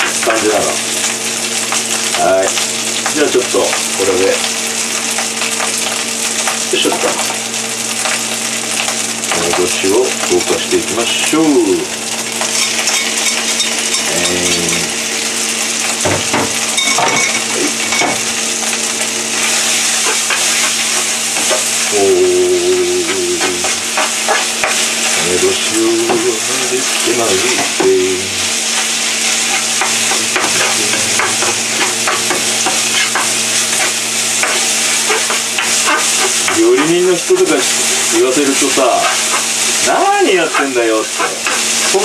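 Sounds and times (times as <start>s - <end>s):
rice sizzling in frying pan: 0.0s - 42.0s
utensil scraping pan: 19.4s - 42.0s.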